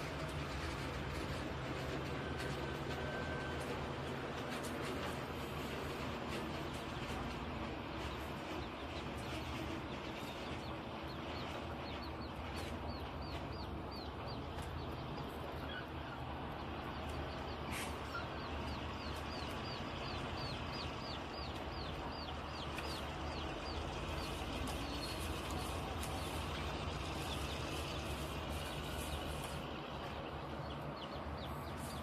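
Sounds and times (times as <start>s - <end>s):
distant machinery and truck engines: 0.0s - 32.0s
bird chirping: 5.0s - 32.0s.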